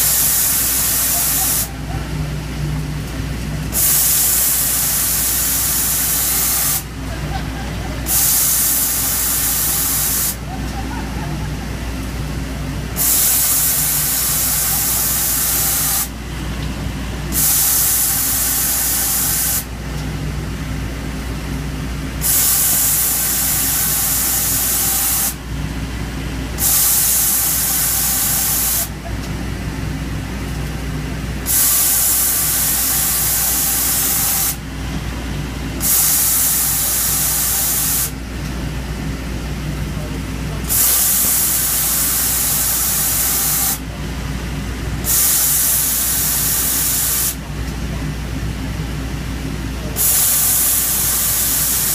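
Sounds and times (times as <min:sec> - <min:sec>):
loud hiss: 0:00.0 - 0:01.7, 0:03.7 - 0:06.9, 0:08.0 - 0:10.5, 0:12.9 - 0:16.2, 0:17.3 - 0:19.7, 0:22.2 - 0:25.4, 0:26.6 - 0:28.9, 0:31.4 - 0:34.6, 0:35.8 - 0:38.2, 0:40.6 - 0:43.8, 0:45.0 - 0:47.4, 0:50.0 - 0:51.9
machine hum: 0:00.0 - 0:45.1.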